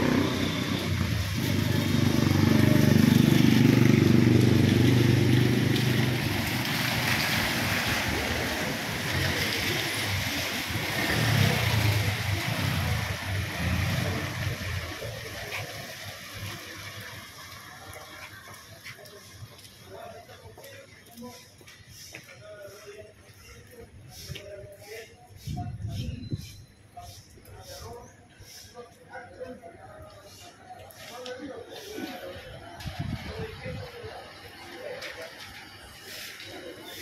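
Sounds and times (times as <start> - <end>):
cars driving past: 0.0 - 17.4
tyre hiss on wet road: 5.7 - 19.5, 35.8 - 37.0.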